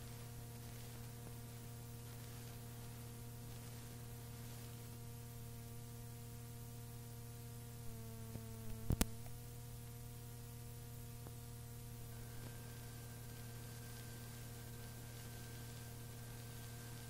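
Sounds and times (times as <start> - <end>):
tape hum and hiss: 0.0 - 17.0
faint clicks: 8.3 - 10.0.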